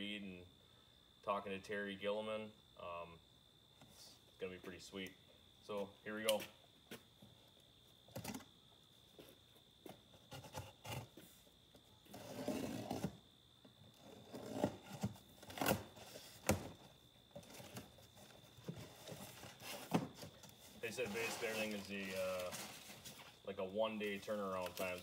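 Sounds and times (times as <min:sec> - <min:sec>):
cardboard packaging clicks and knocks: 0:14.6 - 0:17.9.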